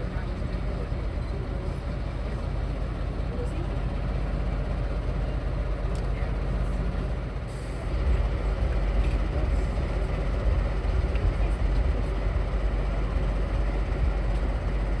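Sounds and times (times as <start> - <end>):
diesel locomotive rumbling: 0.0 - 15.0.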